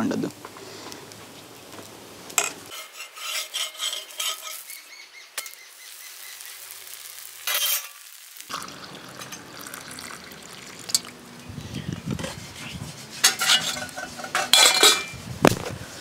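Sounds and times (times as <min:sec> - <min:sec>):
batter sizzling on hot pan: 0:00.4 - 0:15.6
metal ladle scraping steel bowl: 0:02.4 - 0:04.8, 0:12.1 - 0:15.2.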